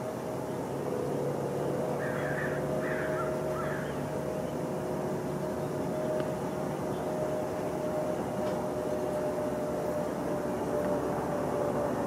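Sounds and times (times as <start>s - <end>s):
steady mechanical hum: 0.0s - 12.0s
short bird calls: 2.0s - 4.1s.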